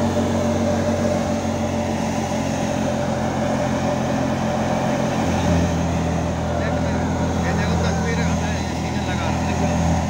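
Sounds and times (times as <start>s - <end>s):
thresher mechanical drone: 0.0s - 10.0s.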